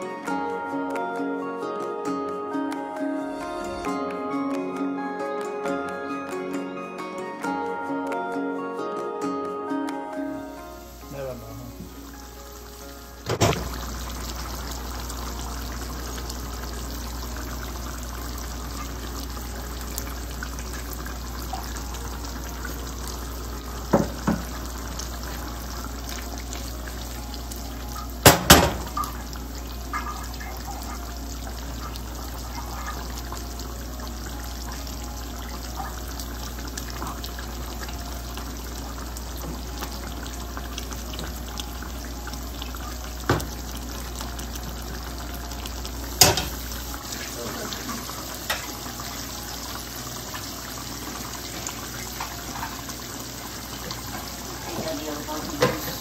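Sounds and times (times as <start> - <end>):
curry bubbling in a pan: 11.3 - 56.0
spatula knocking on pan: 23.9 - 24.6, 28.2 - 29.0.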